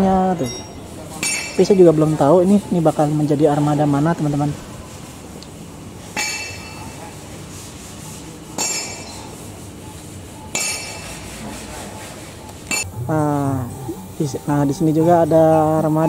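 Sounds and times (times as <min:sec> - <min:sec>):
steady low hiss: 0:12.2 - 0:16.0.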